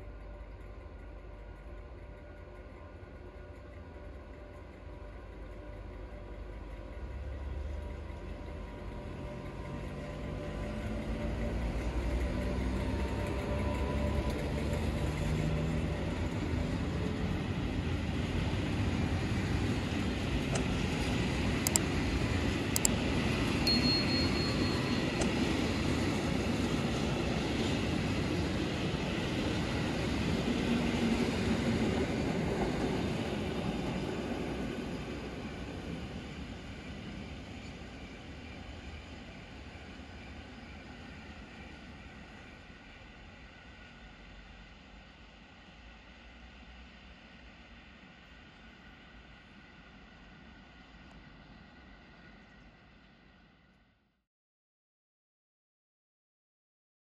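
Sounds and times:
train wheels rumbling on rails: 0.0s - 53.4s
locomotive humming: 0.0s - 53.5s
sharp clicks: 21.6s - 21.9s.

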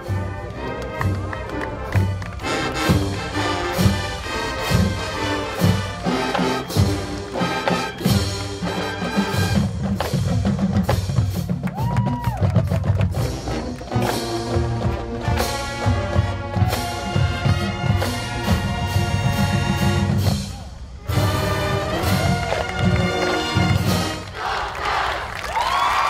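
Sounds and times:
brass holding chords: 0.0s - 9.9s, 13.3s - 20.3s, 21.0s - 24.6s
drumline strikes: 0.0s - 25.2s.

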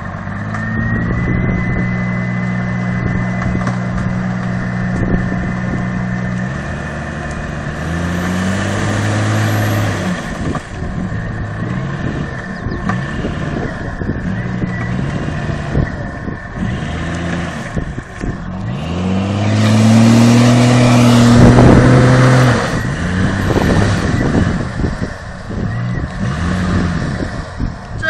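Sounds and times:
suv engine revving: 0.0s - 28.0s
tyres churning mud: 1.8s - 27.6s.

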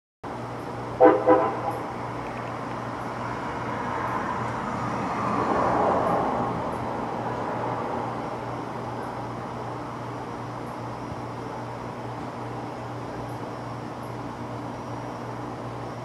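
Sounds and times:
passing traffic: 0.2s - 16.0s
steady low hum: 0.2s - 16.0s
vehicle air horn blasts: 1.0s - 1.9s.

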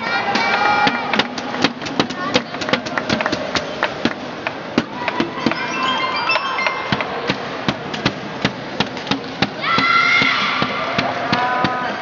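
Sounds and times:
sharp knocks and claps: 0.2s - 5.6s.

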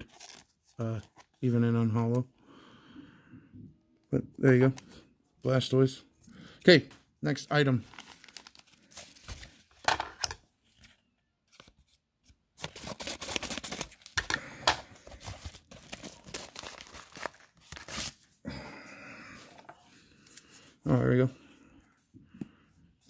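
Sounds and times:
cardboard and tape tearing: 15.2s - 18.3s.

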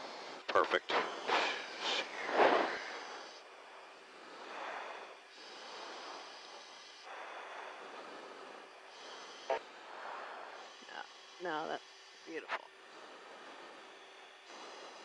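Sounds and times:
radio channel hiss: 0.0s - 3.4s, 9.0s - 12.7s.

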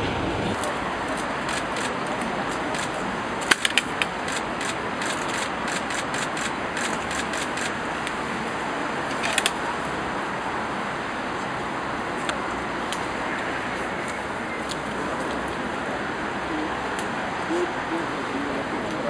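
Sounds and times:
outdoor background hiss: 0.0s - 19.0s
sharp clicks and crinkles: 9.1s - 9.6s.

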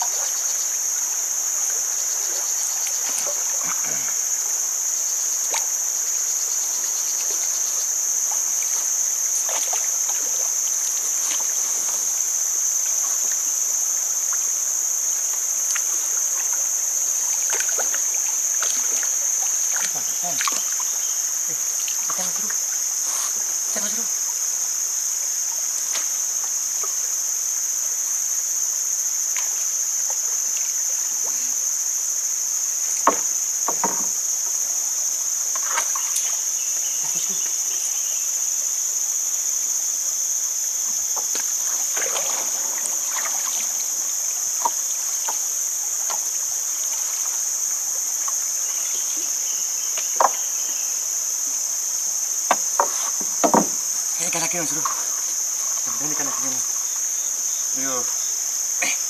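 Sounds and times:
shrill insect chorus: 0.0s - 59.0s
knocks against wooden boat: 33.0s - 34.2s, 52.5s - 53.8s.

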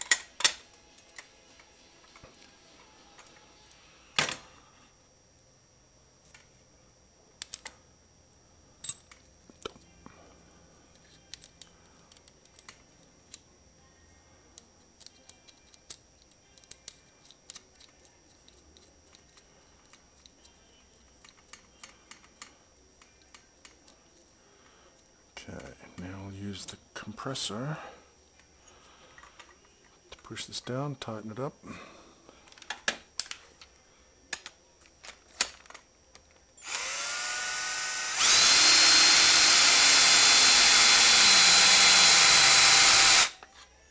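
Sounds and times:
small metal parts clicking: 14.6s - 20.5s.

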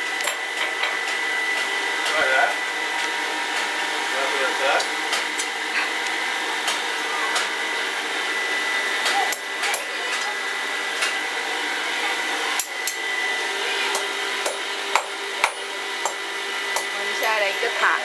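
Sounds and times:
hammer striking iron on anvil: 13.9s - 16.2s.

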